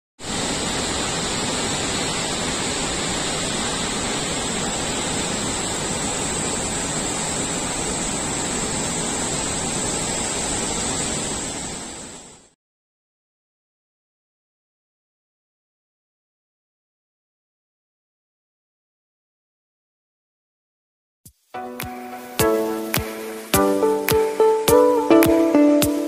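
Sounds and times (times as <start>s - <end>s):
whitewater rushing: 0.2s - 12.2s, 21.6s - 26.0s.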